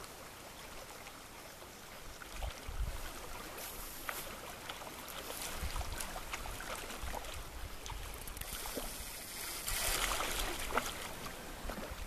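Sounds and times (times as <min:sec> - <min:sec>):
river flowing: 0:00.0 - 0:12.0
faint ticks: 0:07.8 - 0:09.9.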